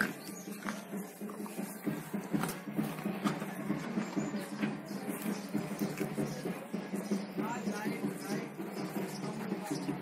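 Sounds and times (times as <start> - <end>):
calf chewing greens: 0.0 - 4.2, 5.1 - 6.3.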